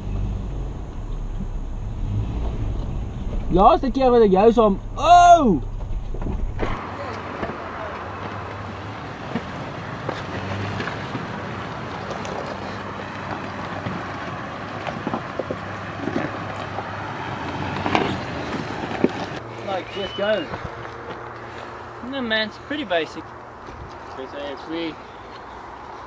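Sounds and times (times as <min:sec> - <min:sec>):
engine running at low revs: 0:00.0 - 0:06.8.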